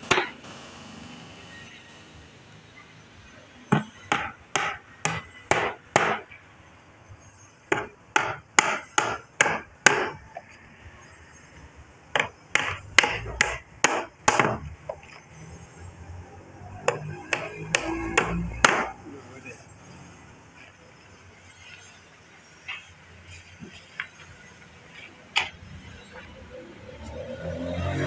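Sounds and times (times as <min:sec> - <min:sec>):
hammer driving nails into wood: 0:07.7 - 0:10.2, 0:12.2 - 0:14.7, 0:16.9 - 0:18.9.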